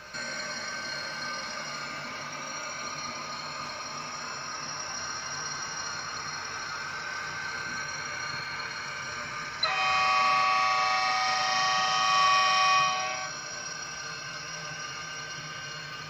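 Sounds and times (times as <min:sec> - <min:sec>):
model locomotive horn chord: 0:09.6 - 0:13.4.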